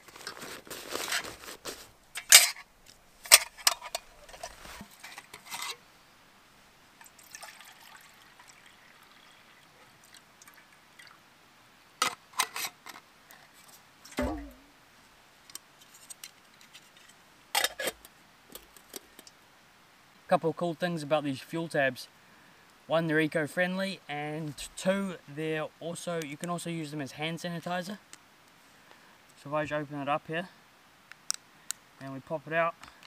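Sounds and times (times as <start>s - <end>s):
water pouring into cup: 7.0s - 11.2s
metal cup clinking: 14.2s - 14.6s.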